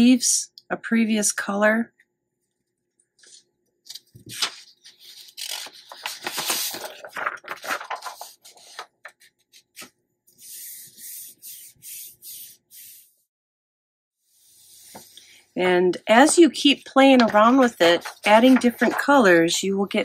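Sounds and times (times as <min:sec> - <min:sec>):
paper sheets rustling: 0:03.2 - 0:13.1, 0:14.6 - 0:15.3, 0:16.1 - 0:19.4
hand rubbing over paper: 0:10.4 - 0:13.2.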